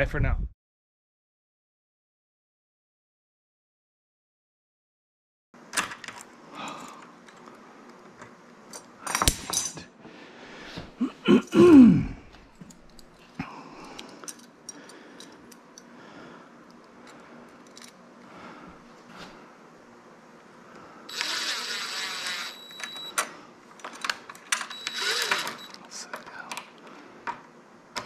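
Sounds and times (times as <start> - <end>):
man's short vocal outburst: 11.0 - 12.2.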